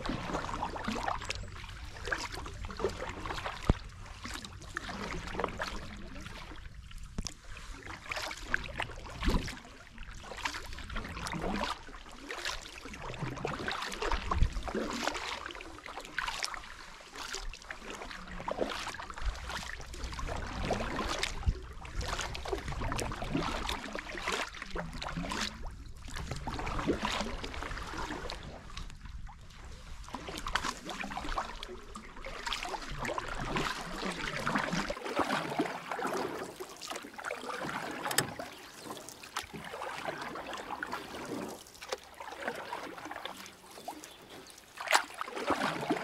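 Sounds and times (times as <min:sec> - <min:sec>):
water splashing and dripping: 0:00.0 - 0:06.6, 0:08.0 - 0:16.6, 0:30.1 - 0:46.0
kayak paddle stroking through water: 0:00.0 - 0:46.0.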